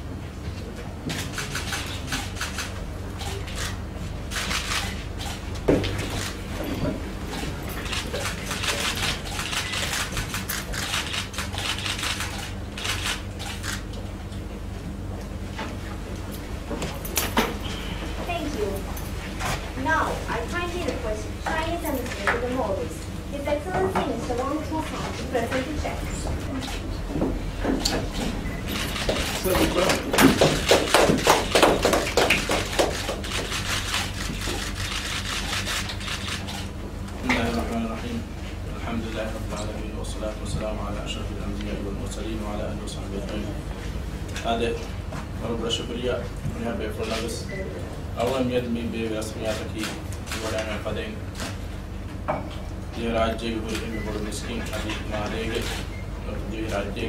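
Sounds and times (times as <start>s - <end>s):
electrical hum: 0.0s - 57.0s
audience clapping: 28.9s - 36.4s.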